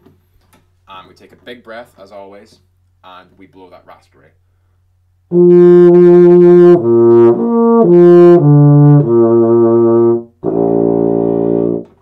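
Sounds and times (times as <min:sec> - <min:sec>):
euphonium notes: 0:05.3 - 0:12.0.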